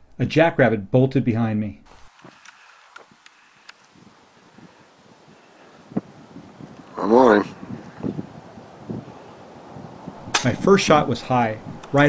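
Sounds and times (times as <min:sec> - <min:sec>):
light sharp ticks and crunches: 0:01.9 - 0:04.0.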